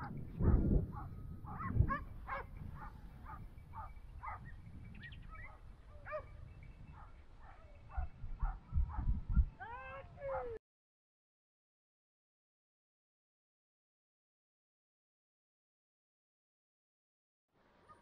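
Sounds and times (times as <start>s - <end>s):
hunting dogs baying: 0.0s - 4.6s, 5.2s - 10.6s.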